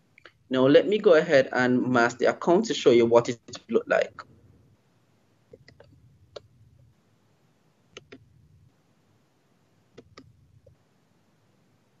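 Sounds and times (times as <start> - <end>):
computer mouse clicks: 5.5 - 6.5, 7.9 - 8.3, 9.9 - 10.8.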